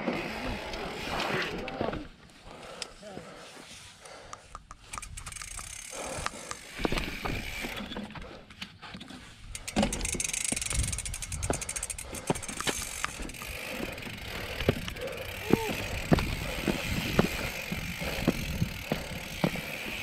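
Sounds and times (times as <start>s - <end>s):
bike freehub ticking: 4.0s - 8.6s, 9.4s - 20.0s
bike rolling over rock: 5.0s - 8.3s, 9.4s - 20.0s
bike frame knocks and rattles: 9.0s - 20.0s.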